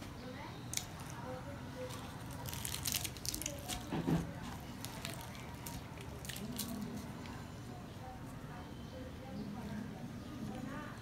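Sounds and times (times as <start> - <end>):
fried bread crust crackling: 0.7 - 7.4.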